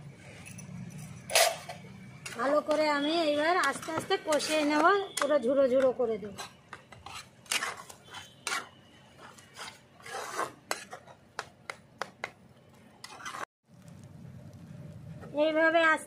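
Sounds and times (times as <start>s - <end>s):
metal spatula scraping pan: 1.2s - 11.2s, 13.0s - 13.5s.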